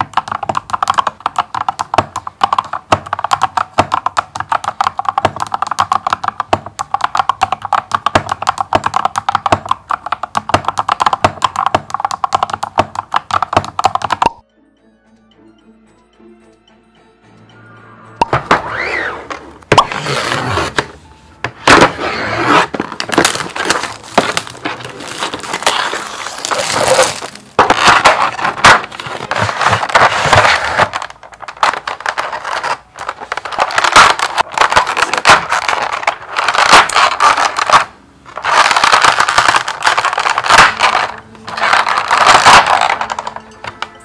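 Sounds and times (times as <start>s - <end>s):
plastic tray crinkling: 21.6s - 43.4s.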